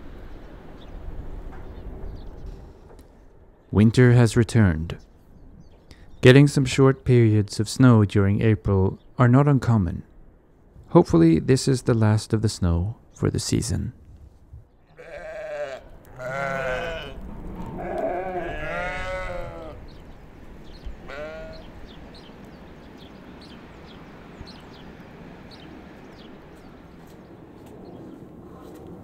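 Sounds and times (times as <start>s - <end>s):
sheep bleating: 14.9s - 17.2s, 17.8s - 20.0s, 21.0s - 21.9s.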